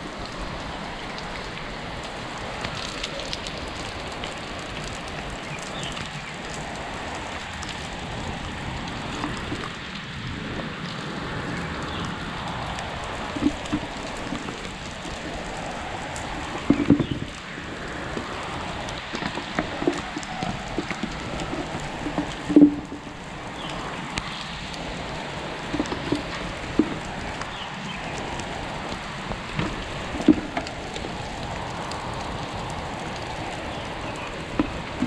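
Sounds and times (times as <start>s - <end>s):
rain on water and concrete: 0.0s - 35.0s.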